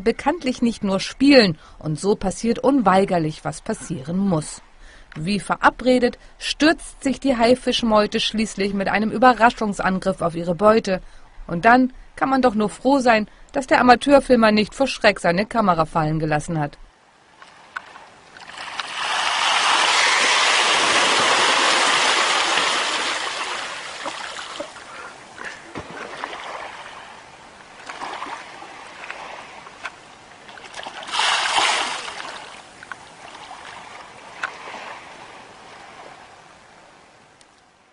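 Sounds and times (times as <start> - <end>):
water splashing and churning: 17.2 - 37.1.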